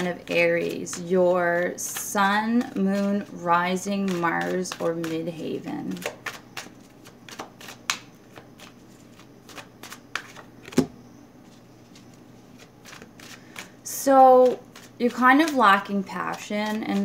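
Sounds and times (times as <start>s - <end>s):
cards shuffled by hand: 3.8s - 10.9s, 11.5s - 17.0s.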